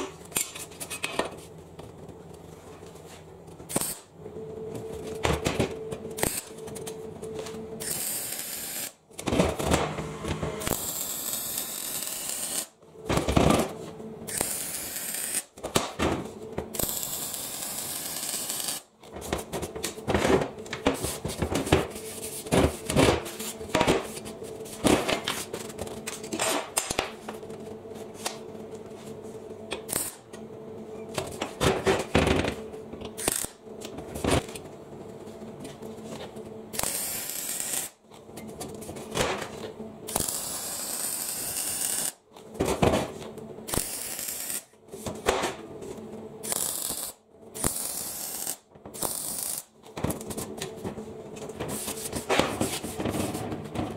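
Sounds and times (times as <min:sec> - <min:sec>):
steady hum: 0:00.0 - 0:53.9
welding arc crackling hiss: 0:03.7 - 0:04.1, 0:06.2 - 0:06.5, 0:07.8 - 0:09.0, 0:10.6 - 0:12.7, 0:14.3 - 0:15.5, 0:16.7 - 0:18.9, 0:29.9 - 0:30.2, 0:36.8 - 0:38.0, 0:40.1 - 0:42.2, 0:43.7 - 0:44.7, 0:46.4 - 0:49.7.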